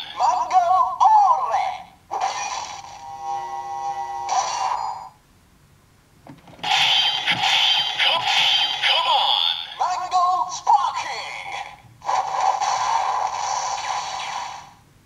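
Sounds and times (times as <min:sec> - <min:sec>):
recorded voice call from toy: 0:00.0 - 0:02.0, 0:07.8 - 0:11.8.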